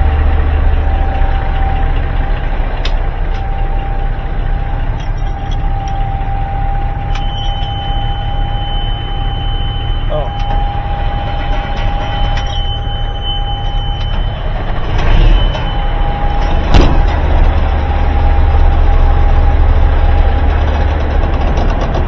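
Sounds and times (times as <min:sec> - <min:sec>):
diesel truck engine idling: 0:00.0 - 0:22.0
steady high tone: 0:05.8 - 0:20.4
sharp bang: 0:14.8 - 0:17.4.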